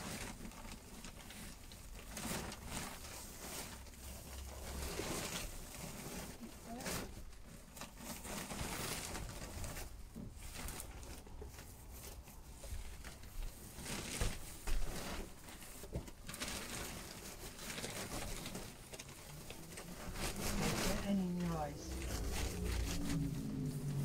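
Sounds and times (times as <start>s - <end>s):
foil insulation rustling: 0.0s - 24.0s.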